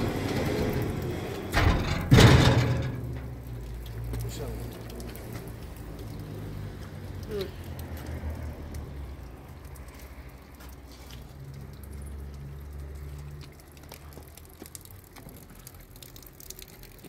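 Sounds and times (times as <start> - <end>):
rain pattering and dripping: 0.0 - 17.0.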